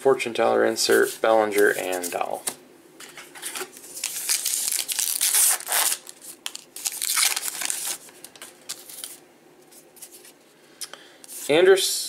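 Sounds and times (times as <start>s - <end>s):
wrapper crinkling and tearing: 3.5s - 9.2s.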